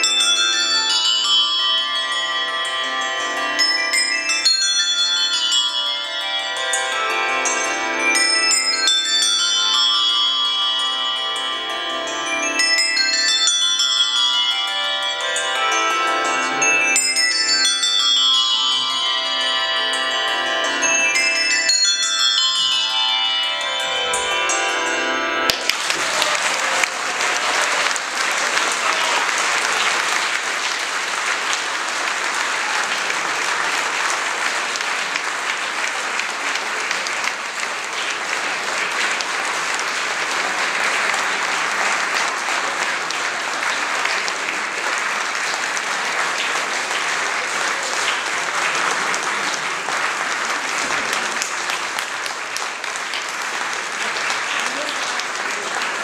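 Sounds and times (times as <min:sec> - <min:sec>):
handbell chord: 0:00.0 - 0:27.8
audience applauding: 0:25.5 - 0:56.0.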